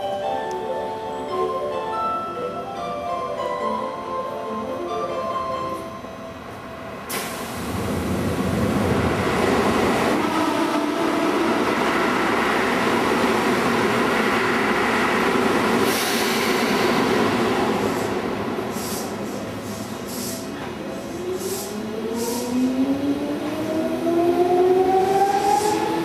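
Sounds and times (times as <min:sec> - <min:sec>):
electric train pulling out: 0:07.0 - 0:26.0
brief high hiss: 0:07.1 - 0:07.6.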